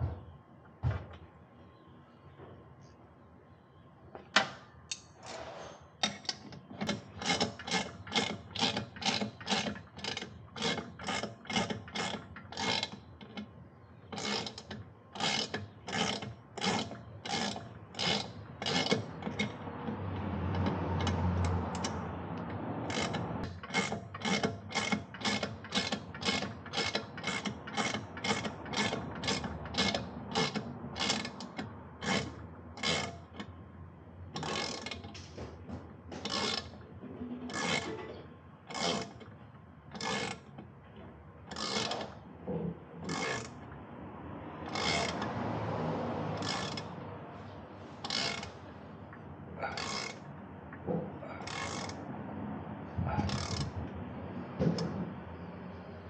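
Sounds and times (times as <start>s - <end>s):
ratchet wrench clicking: 22.8s - 33.5s, 34.4s - 35.2s, 36.2s - 36.7s, 40.0s - 40.4s, 41.5s - 42.2s, 43.1s - 43.6s, 44.6s - 45.3s, 46.4s - 46.9s, 48.0s - 48.5s, 49.7s - 50.2s, 51.4s - 52.0s, 53.2s - 53.7s.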